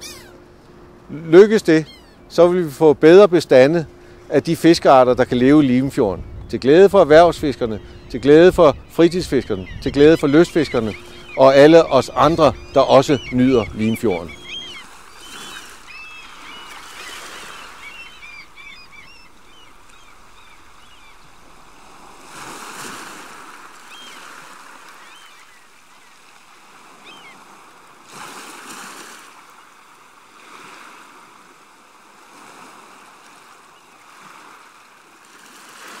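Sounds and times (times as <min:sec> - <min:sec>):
waterbirds calling: 0:00.0 - 0:36.0
water washing in surges: 0:21.4 - 0:36.0.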